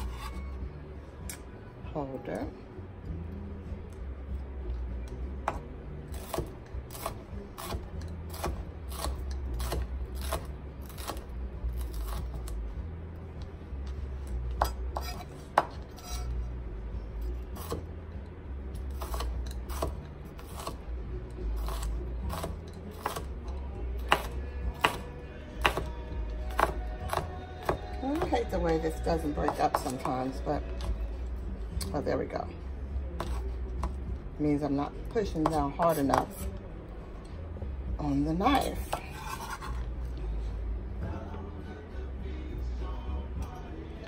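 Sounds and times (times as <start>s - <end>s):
knife chopping on cutting board: 5.5s - 11.2s, 14.6s - 16.2s, 19.0s - 20.8s, 21.6s - 23.3s, 24.0s - 25.9s, 26.5s - 28.4s, 33.2s - 34.0s.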